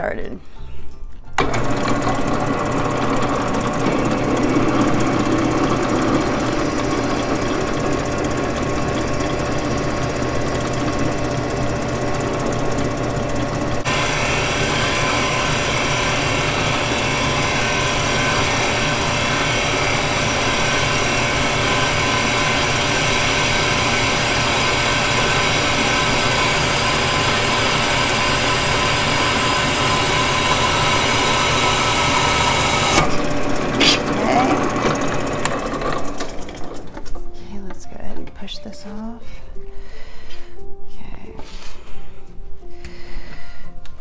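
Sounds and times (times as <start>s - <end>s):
drill press motor running: 1.4s - 37.3s
drill bit grinding into glass: 13.8s - 33.2s.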